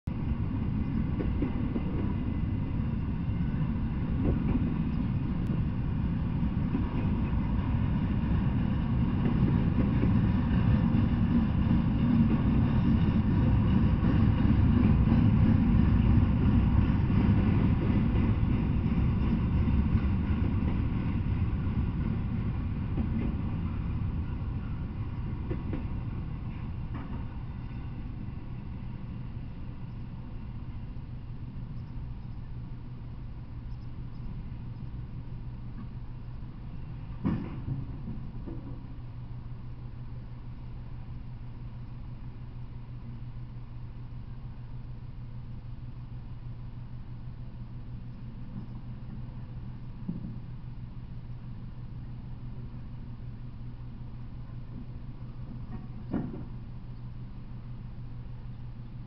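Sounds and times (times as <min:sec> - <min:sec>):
freight train rumbling on rails: 0:00.0 - 0:59.0.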